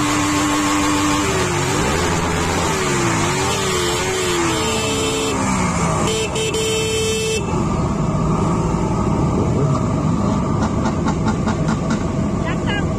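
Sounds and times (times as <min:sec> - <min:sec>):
vehicle horn: 0:03.4 - 0:07.6.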